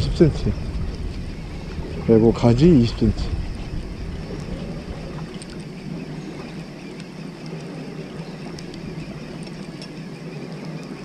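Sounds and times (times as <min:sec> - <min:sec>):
boat engine humming: 0:00.0 - 0:11.0
sea noise: 0:00.0 - 0:11.0
wind: 0:00.0 - 0:11.0
faint ticks: 0:04.2 - 0:11.0.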